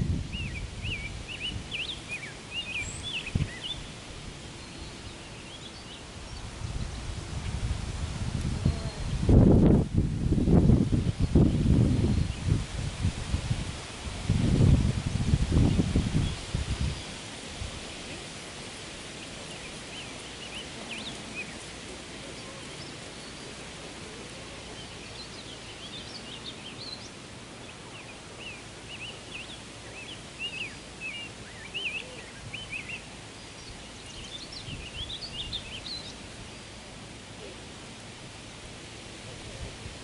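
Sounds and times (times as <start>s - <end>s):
rustling foliage: 0.0s - 40.0s
wind: 0.0s - 40.0s
birds chirping and singing: 0.3s - 4.0s, 19.2s - 36.7s.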